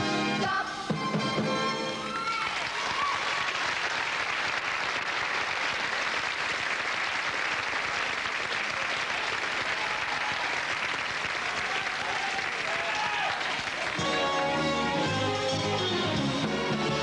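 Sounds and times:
audience applauding: 0:02.3 - 0:15.7.

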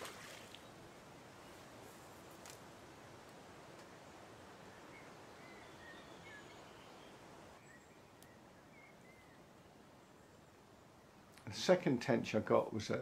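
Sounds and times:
low steady hiss: 0:00.0 - 0:13.0
small birds chirping: 0:03.9 - 0:11.5
faint click: 0:08.2 - 0:08.4.

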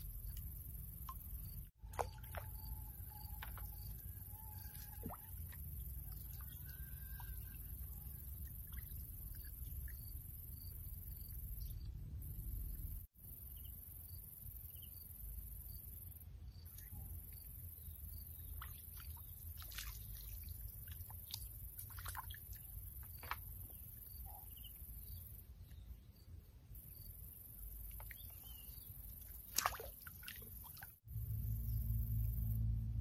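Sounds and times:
water drips and splashes: 0:00.0 - 0:10.3, 0:18.4 - 0:23.8, 0:27.8 - 0:31.1
low steady hum: 0:00.0 - 0:13.7, 0:17.1 - 0:33.0.

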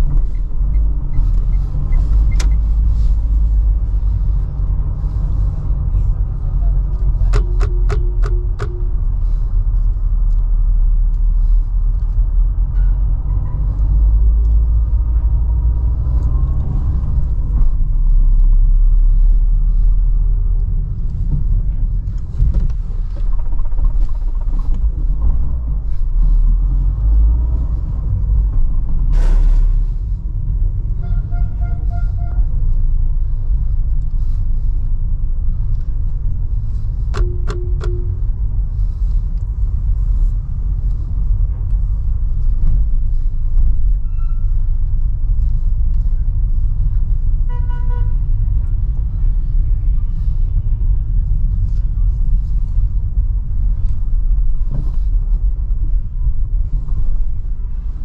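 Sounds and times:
car engine and tyre rumble: 0:00.0 - 0:58.0
car horn: 0:31.0 - 0:32.5, 0:47.5 - 0:48.2.

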